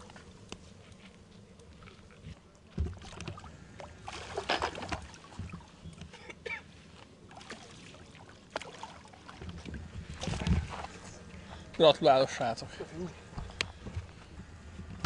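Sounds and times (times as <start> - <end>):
fish splashing in water: 2.8 - 5.8, 7.2 - 11.1.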